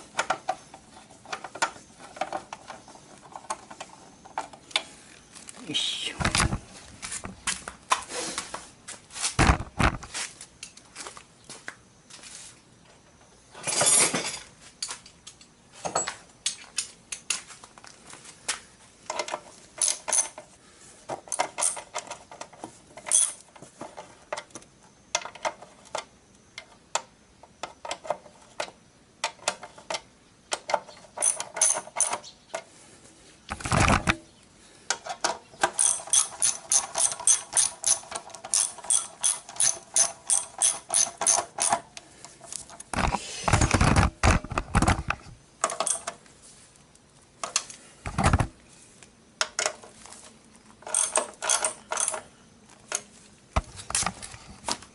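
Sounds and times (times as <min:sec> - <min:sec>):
ratchet wrench clicking: 0:35.7 - 0:41.8, 0:50.8 - 0:52.2.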